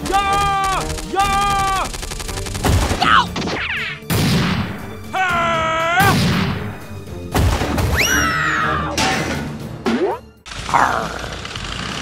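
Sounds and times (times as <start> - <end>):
whistling effect tones: 7.9 - 8.4.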